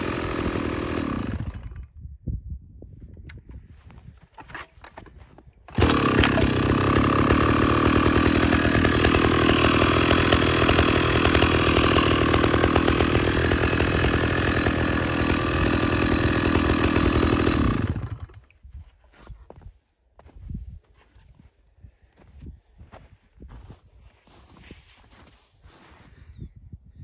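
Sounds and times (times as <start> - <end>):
chainsaw running: 0.0 - 1.9, 4.4 - 18.6.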